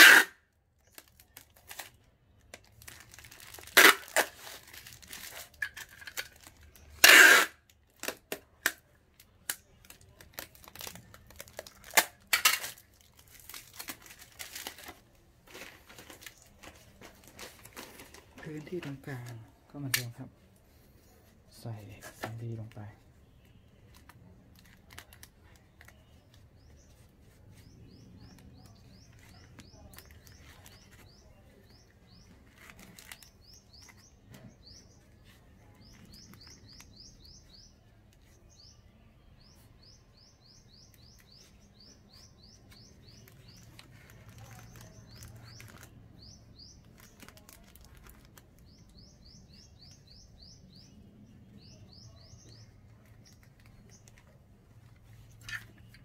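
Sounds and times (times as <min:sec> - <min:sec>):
packing material clicks and rustles: 0:00.8 - 0:20.2, 0:23.4 - 0:38.4, 0:40.9 - 0:49.9, 0:52.5 - 0:56.0
small bird chirping: 0:25.0 - 0:56.0.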